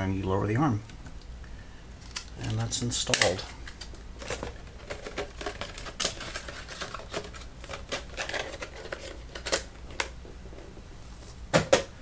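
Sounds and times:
packaging rustling: 2.0 - 10.6.

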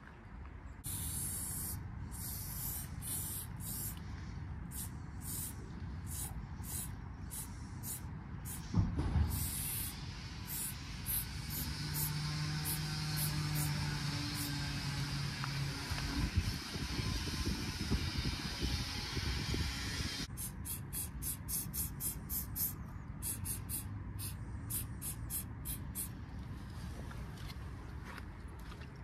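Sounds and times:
spray paint can hissing: 0.8 - 4.1, 4.7 - 14.5, 19.6 - 26.1
dull thump: 8.6 - 9.4.

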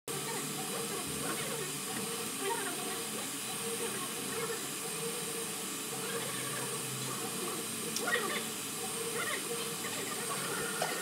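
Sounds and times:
cooling fans whirring: 0.1 - 11.0
steady hum: 0.1 - 11.0.

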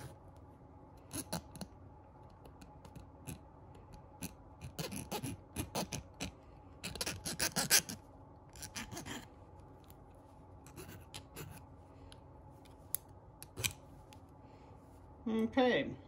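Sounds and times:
file scraping copper wire: 4.2 - 8.0, 8.6 - 9.3, 10.6 - 11.6.

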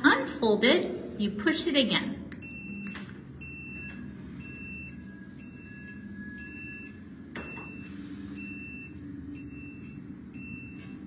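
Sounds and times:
high warning beep: 2.4 - 11.0.

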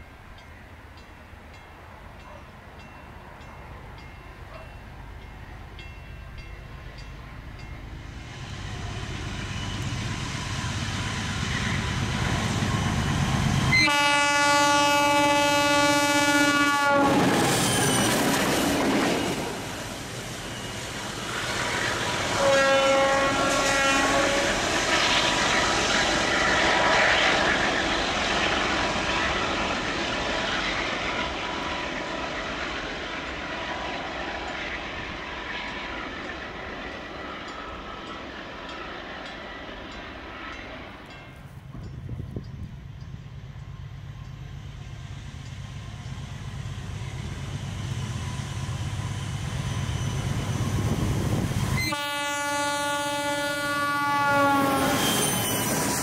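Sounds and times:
diesel locomotive engines passing: 0.0 - 56.0
locomotive horn blasts: 13.7 - 17.4, 22.3 - 24.6, 51.8 - 55.7.

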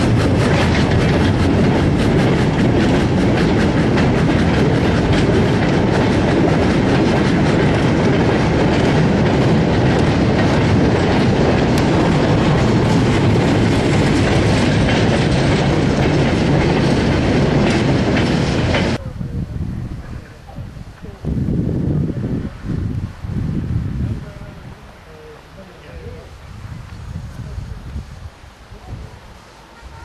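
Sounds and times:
wheels clicking over rail joints: 0.0 - 19.0
train rumbling past: 0.0 - 30.0.

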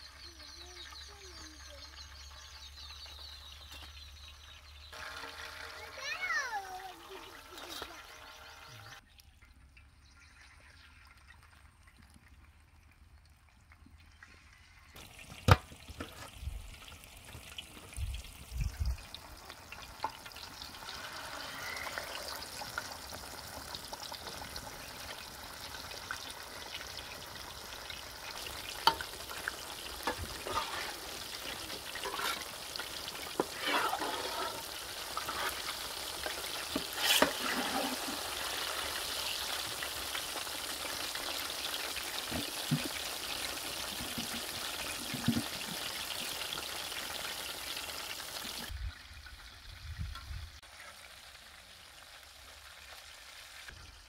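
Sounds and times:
food frying in oil: 0.0 - 54.0.

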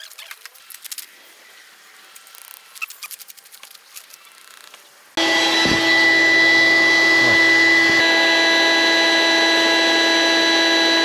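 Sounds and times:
small electric motor whining: 5.2 - 11.0.

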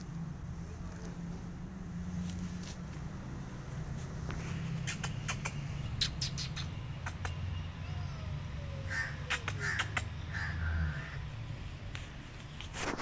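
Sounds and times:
sharp clicks: 4.8 - 7.4
crow cawing: 8.8 - 11.2.

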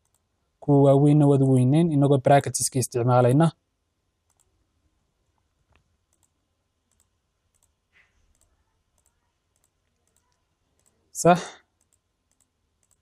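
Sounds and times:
computer mouse clicks: 0.0 - 0.3, 4.2 - 4.6, 5.4 - 11.0, 11.8 - 13.0.

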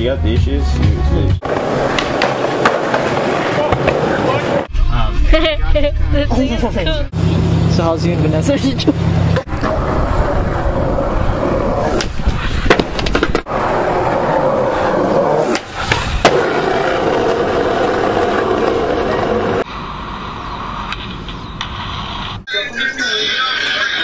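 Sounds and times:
skateboard clacks: 1.4 - 4.7
skateboard wheels rolling on concrete: 1.4 - 4.7, 8.8 - 22.5
skateboard smack: 1.5 - 4.1, 11.9 - 13.4.

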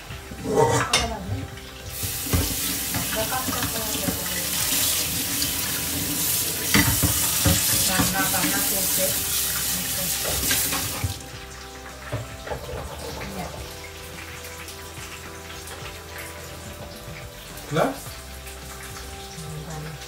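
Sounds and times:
tap running into sink: 0.1 - 20.0
knocks of things in sink: 0.4 - 4.2, 6.6 - 8.6.

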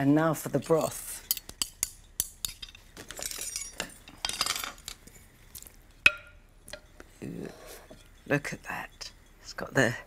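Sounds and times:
glassy clink: 0.7 - 4.9, 6.0 - 7.0
metal ladle scraping glass bowl: 6.7 - 9.6.

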